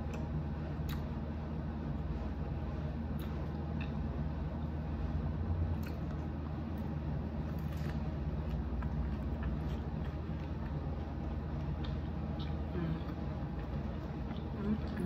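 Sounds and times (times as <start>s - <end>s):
low hum: 0.0s - 15.0s
person eating crunchy chips: 7.4s - 15.0s.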